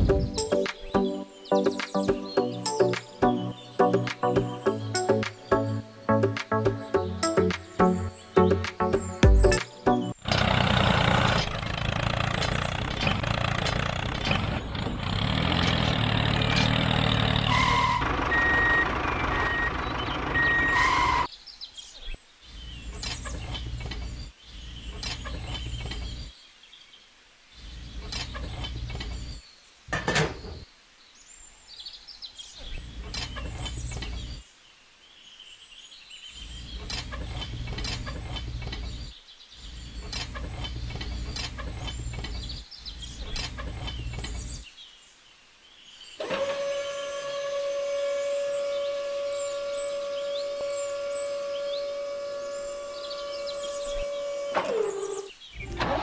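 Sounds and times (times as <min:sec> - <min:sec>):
vehicle noise: 0:08.6 - 0:21.3, 0:46.2 - 0:56.0
reversing beeper: 0:17.4 - 0:21.3.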